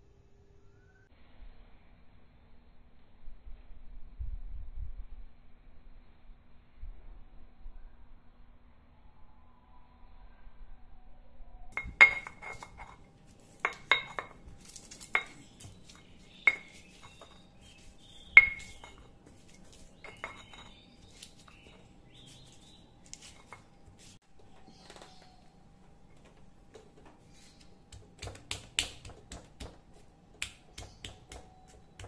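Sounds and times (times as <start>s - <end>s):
crushing and scraping: 11.8s - 24.2s
stone pestle pounding in mortar: 13.6s - 19.3s, 27.8s - 32.0s.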